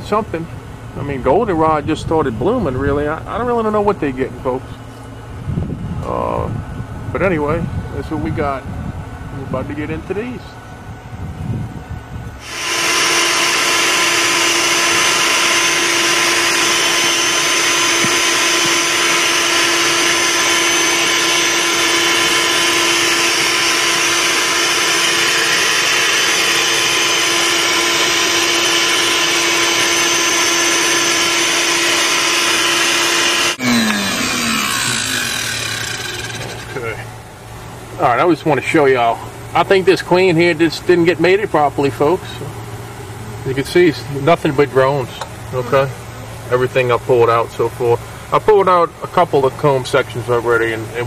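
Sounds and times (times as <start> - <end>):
vacuum motor humming: 12.4 - 38.0.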